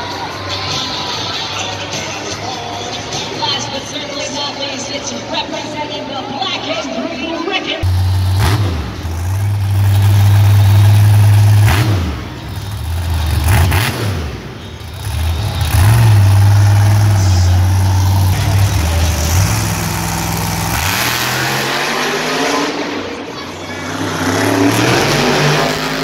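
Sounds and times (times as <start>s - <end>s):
monster truck engine revving: 7.8s - 26.0s.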